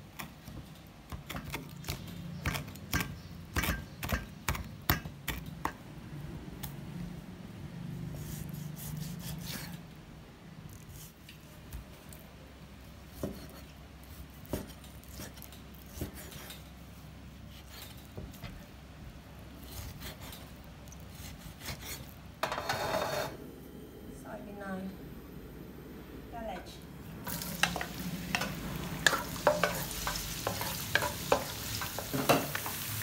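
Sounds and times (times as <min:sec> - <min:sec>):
knife slicing raw meat: 0:08.2 - 0:09.8, 0:19.6 - 0:22.2.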